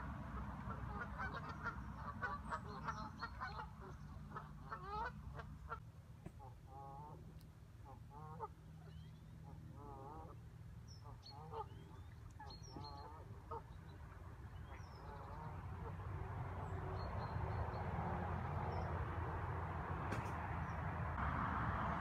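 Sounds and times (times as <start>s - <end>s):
waterfowl honking: 0.6s - 5.8s, 7.8s - 8.6s, 9.5s - 10.4s, 11.0s - 13.7s.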